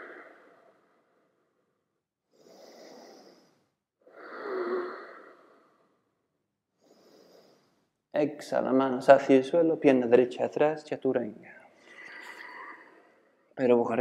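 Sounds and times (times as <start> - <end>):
person breathing deeply: 0.0 - 1.6, 2.2 - 8.0.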